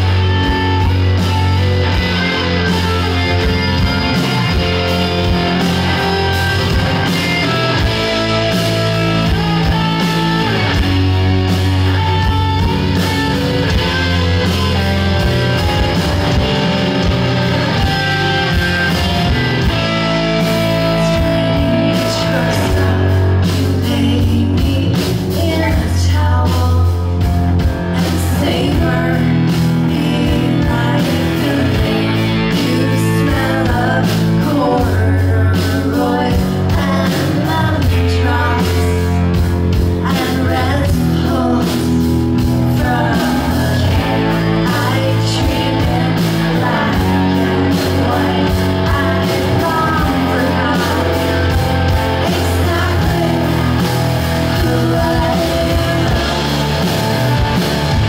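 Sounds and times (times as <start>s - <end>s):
live rock band playing: 0.0s - 58.0s
woman singing: 20.4s - 27.1s, 27.9s - 39.4s, 40.0s - 56.9s.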